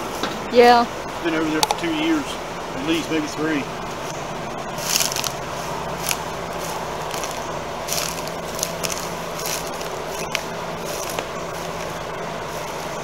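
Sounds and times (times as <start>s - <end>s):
exhaust fan hum: 0.0s - 13.0s
boots trampling dry straw: 4.8s - 13.0s.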